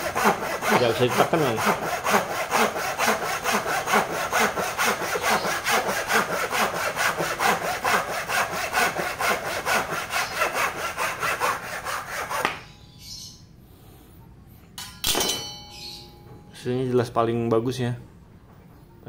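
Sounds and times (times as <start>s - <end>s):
hand saw cutting wood: 0.0s - 12.6s.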